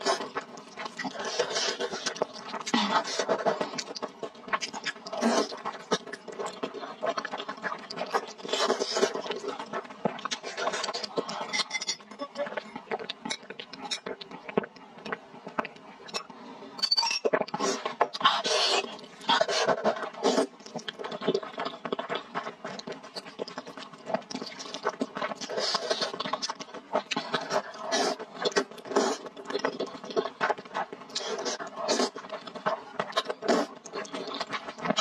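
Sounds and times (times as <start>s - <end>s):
slurping and chewing noodles: 0.0s - 16.3s, 17.3s - 35.0s.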